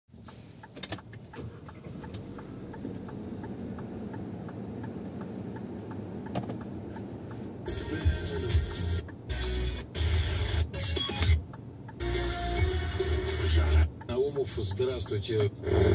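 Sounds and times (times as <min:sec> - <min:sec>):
engine and road rumble: 0:00.1 - 0:15.9
turn signal ticking: 0:00.1 - 0:15.9
loud music: 0:07.7 - 0:11.4, 0:12.0 - 0:13.9.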